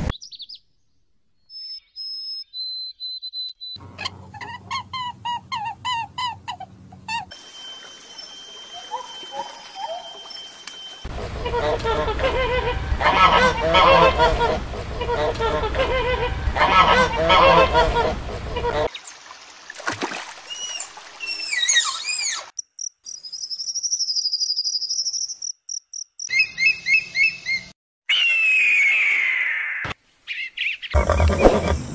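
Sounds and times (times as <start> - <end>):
high squeaky whistles: 7.3 - 11.1.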